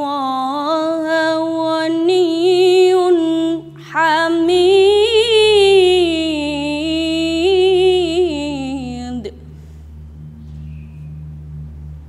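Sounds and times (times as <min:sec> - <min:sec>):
woman reciting melodically: 0:00.0 - 0:09.6.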